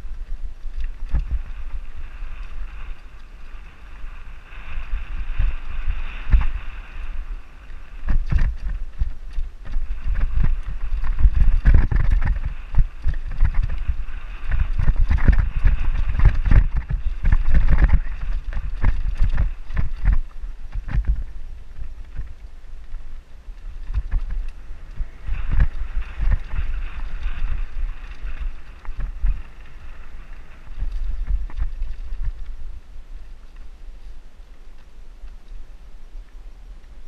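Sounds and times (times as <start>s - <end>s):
bike knocking and rattling: 0.0s - 3.6s, 8.0s - 32.6s.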